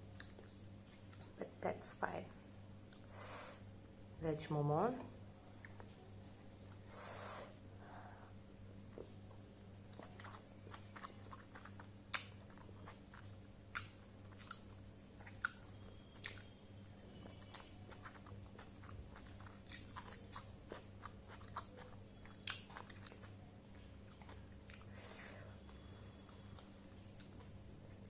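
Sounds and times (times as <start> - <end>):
chewing dumplings: 0.0 - 1.4, 5.4 - 6.9, 8.8 - 25.0, 25.6 - 28.0
low steady hum: 0.0 - 28.0.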